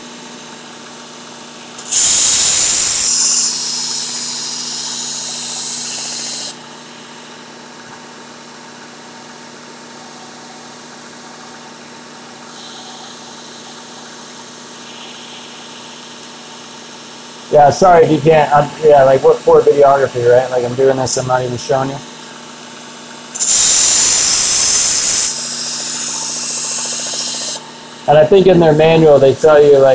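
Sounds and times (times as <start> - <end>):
belt sharpener motor hum: 1.8 - 6.6, 23.3 - 27.8.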